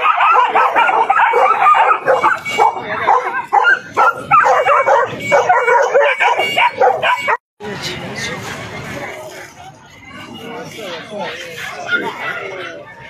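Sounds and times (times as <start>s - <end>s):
puppies yapping and whining: 0.0s - 7.4s, 10.9s - 13.0s.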